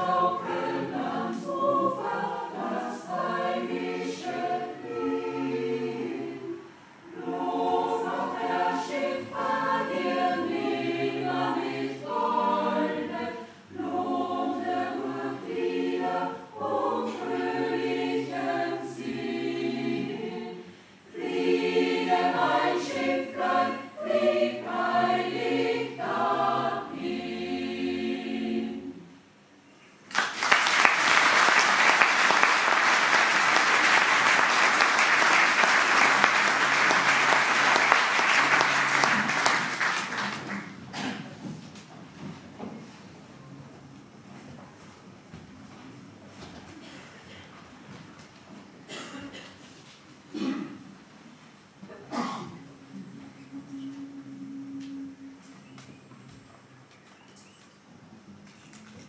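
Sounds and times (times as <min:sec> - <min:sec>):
mixed choir singing: 0:00.0 - 0:29.3, 0:30.4 - 0:41.2, 0:53.0 - 0:56.0
audience applauding: 0:30.1 - 0:40.8.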